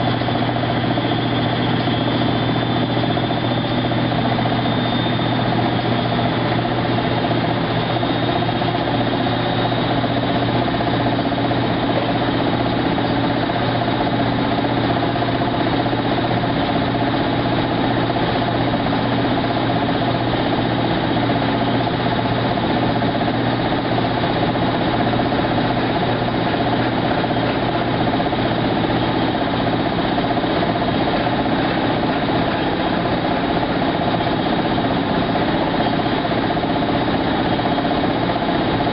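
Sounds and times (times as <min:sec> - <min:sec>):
washing machine humming: 0:00.0 - 0:38.9.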